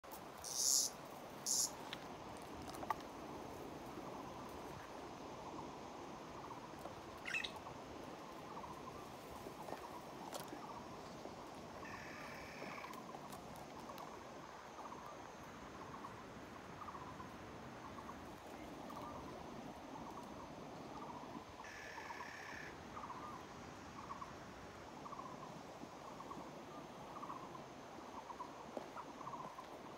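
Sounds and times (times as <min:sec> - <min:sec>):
birds and squirrels chirping: 0:00.4 - 0:01.8, 0:06.4 - 0:14.2, 0:16.8 - 0:23.4, 0:27.1 - 0:27.6.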